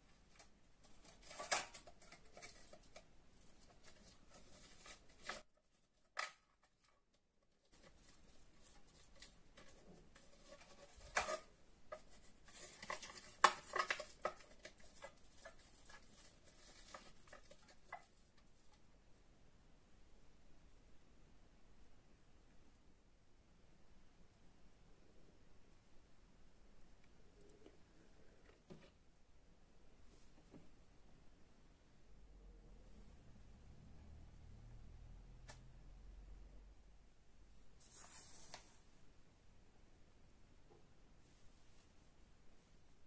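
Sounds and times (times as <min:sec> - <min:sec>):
brush rubbing in foil cup: 0:00.0 - 0:05.9, 0:07.6 - 0:18.3
foil crinkling and tapping: 0:00.3 - 0:18.4.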